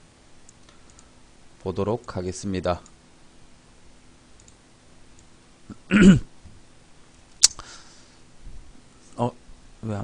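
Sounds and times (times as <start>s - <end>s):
faint room hiss: 0.0s - 10.0s
man's cough-like throat sound: 5.7s - 6.3s.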